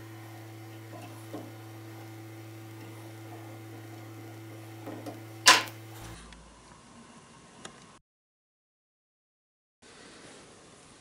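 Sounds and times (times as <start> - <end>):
electrical hum: 0.0 - 8.0.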